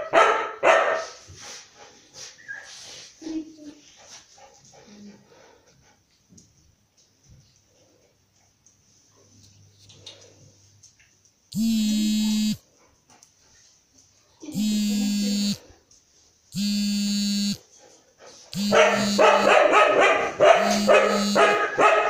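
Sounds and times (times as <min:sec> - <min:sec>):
dog barking: 0:00.0 - 0:01.2, 0:18.5 - 0:22.0
flat buzzing tone: 0:11.5 - 0:12.6, 0:14.6 - 0:15.6, 0:16.6 - 0:17.6, 0:18.6 - 0:19.5, 0:20.6 - 0:21.6.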